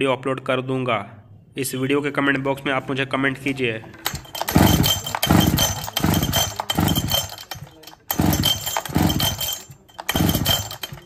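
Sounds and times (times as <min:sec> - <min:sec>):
chainsaw pull-start cranking: 0:04.0 - 0:11.0.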